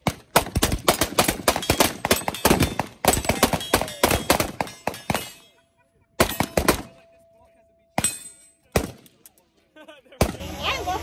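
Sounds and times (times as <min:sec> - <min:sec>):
steel targets ringing: 0:01.5 - 0:05.6, 0:06.2 - 0:08.7.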